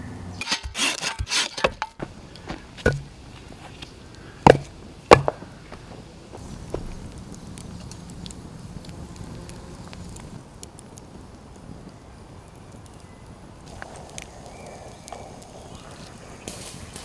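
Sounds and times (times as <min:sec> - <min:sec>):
logs knocking on pile: 0:01.6 - 0:03.2, 0:04.4 - 0:05.9
hatchet chopping log: 0:02.8 - 0:03.1, 0:04.4 - 0:05.4.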